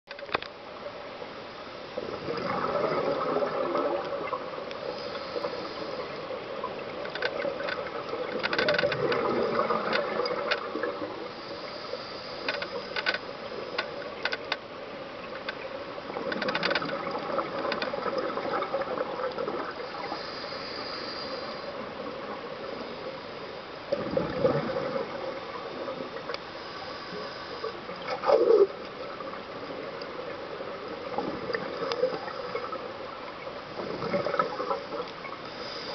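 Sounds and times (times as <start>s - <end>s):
small clicks: 0.1s - 0.6s, 6.9s - 10.8s, 12.3s - 14.7s, 15.3s - 18.4s
gurgling exhaled bubbles: 2.0s - 4.6s, 6.0s - 11.3s, 16.1s - 20.2s, 23.9s - 26.3s, 33.8s - 35.4s
regulator inhale hiss: 4.8s - 6.4s, 11.2s - 13.2s, 19.8s - 22.0s, 26.4s - 27.9s, 35.5s - 35.9s.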